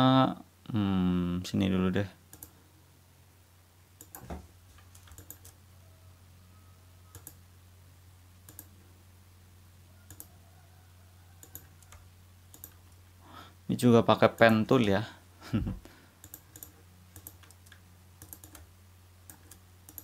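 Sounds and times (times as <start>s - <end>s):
low steady hum: 0.0s - 20.0s
faint computer mouse clicks: 2.3s - 2.6s, 8.4s - 8.7s, 10.1s - 10.3s, 11.4s - 13.0s, 16.2s - 20.0s.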